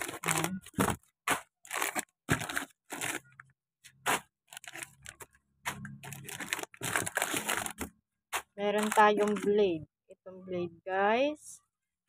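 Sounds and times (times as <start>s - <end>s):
plastic sachets rustling: 0.0s - 7.9s, 8.6s - 9.6s.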